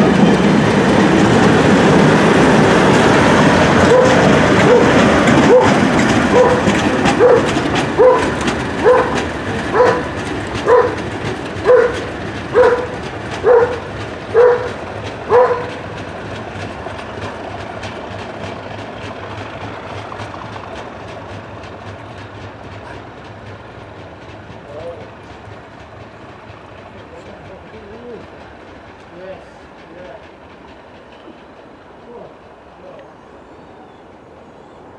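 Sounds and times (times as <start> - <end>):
train running on rails: 0.0 - 34.9.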